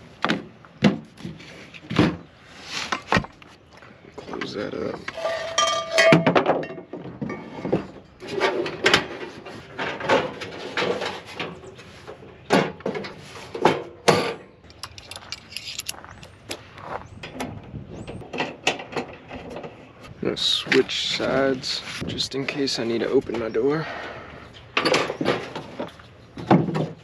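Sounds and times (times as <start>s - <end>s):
gear knocking and clinking: 14.7s - 16.3s.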